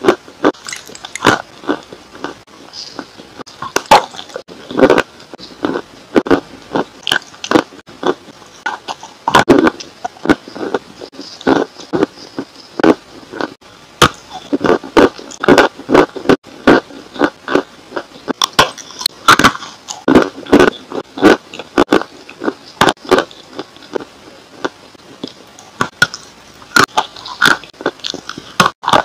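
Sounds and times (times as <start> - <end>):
crunching bites and chewing: 0.0 - 29.0.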